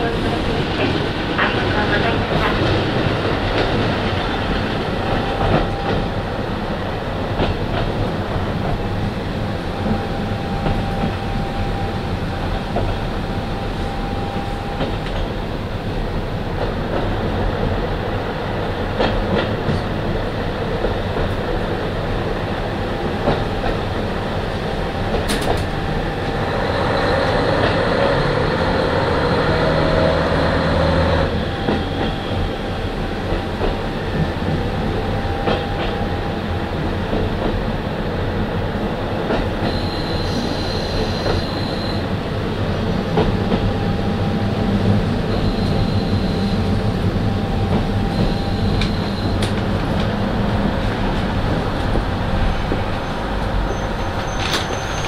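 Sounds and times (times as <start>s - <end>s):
diesel railcar rumble: 0.0s - 55.0s
high wheel squeals: 39.7s - 42.1s, 45.3s - 46.7s, 53.0s - 55.0s.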